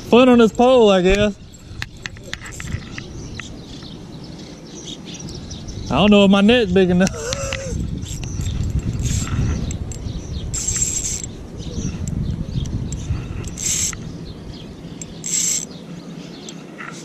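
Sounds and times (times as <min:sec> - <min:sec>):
steady low rumble: 0:00.0 - 0:16.5
fishing reel drag buzzing: 0:07.1 - 0:11.4, 0:12.9 - 0:14.1, 0:15.0 - 0:15.8.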